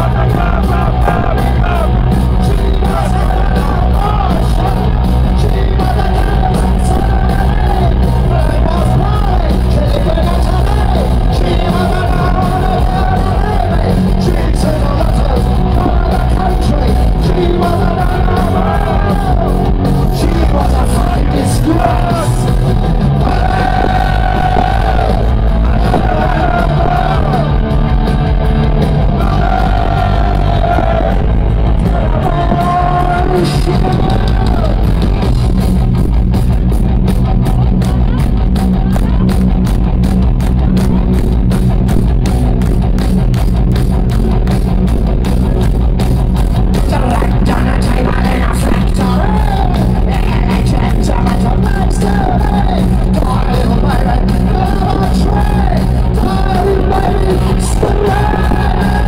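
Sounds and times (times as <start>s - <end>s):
man singing: 0.0s - 27.5s, 31.8s - 34.9s, 46.8s - 59.0s
live punk rock band: 0.0s - 59.0s.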